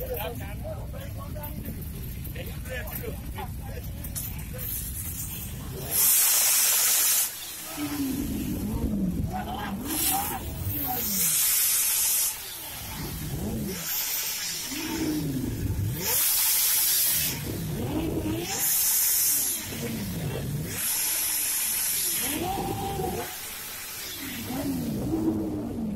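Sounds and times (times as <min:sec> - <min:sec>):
bursts of hiss: 0:04.7 - 0:25.2
motorcycle engine revving: 0:04.8 - 0:25.9.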